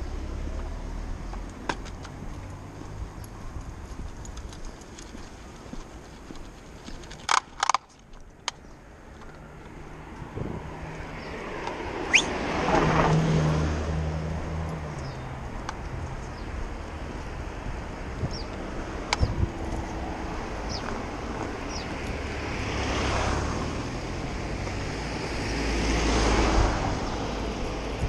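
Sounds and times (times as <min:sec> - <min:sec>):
sharp clicks: 0:06.4 - 0:09.4
car driving past: 0:10.0 - 0:15.3, 0:19.9 - 0:27.9.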